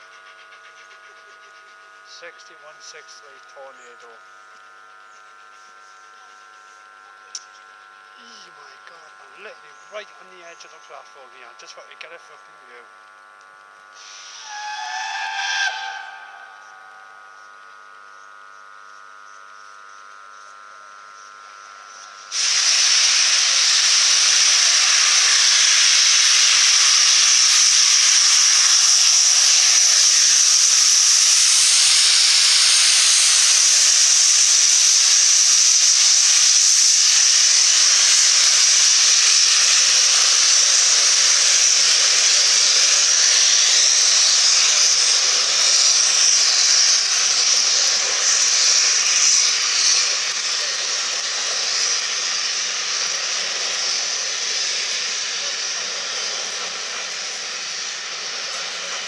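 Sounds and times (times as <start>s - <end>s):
loud hiss of escaping steam: 13.9s - 17.4s, 22.2s - 59.0s.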